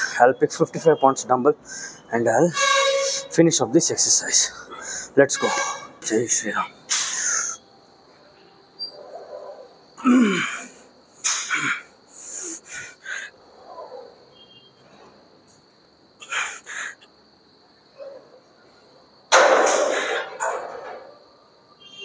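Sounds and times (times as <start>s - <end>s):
man grunting: 10.0s - 10.7s.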